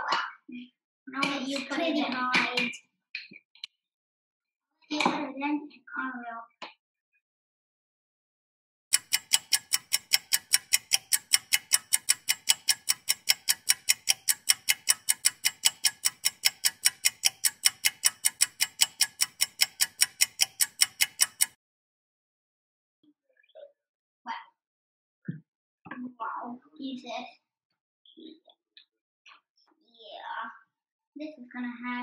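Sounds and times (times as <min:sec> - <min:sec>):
clock ticking: 0:08.9 - 0:21.6.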